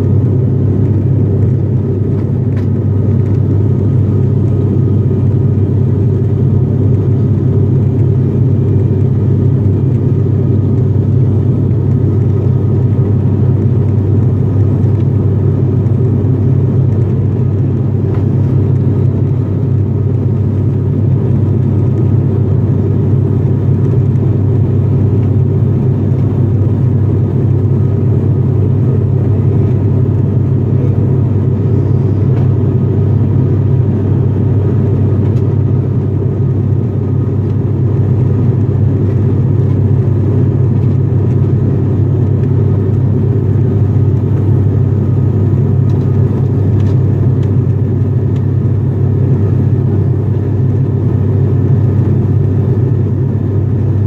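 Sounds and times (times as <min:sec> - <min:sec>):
airplane cabin engine drone: 0:00.0 - 0:54.0.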